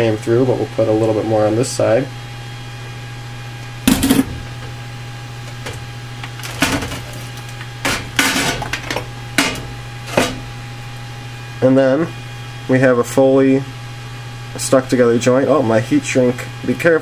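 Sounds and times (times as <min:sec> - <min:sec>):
low electrical hum: 0:00.0 - 0:17.0
metal knocks and rattles: 0:05.6 - 0:10.5.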